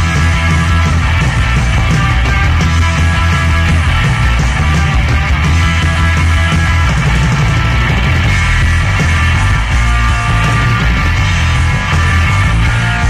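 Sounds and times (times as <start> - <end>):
bass guitar: 0.0 - 13.0
electric guitar: 0.0 - 13.0.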